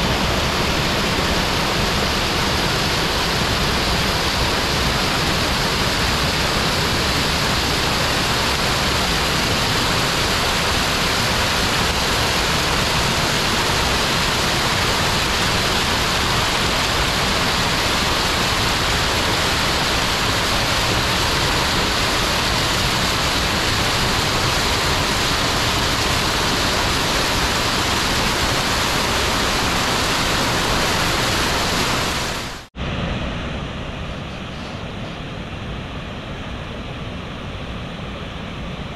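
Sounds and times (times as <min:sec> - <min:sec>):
waterfall rushing over rocks: 0:00.0 - 0:33.0
dull rushing sound: 0:00.0 - 0:38.9.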